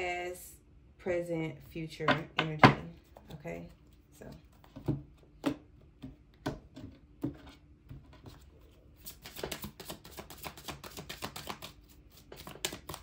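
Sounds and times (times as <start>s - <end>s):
cards shuffling: 8.1s - 13.0s
cards tapping: 9.0s - 13.0s.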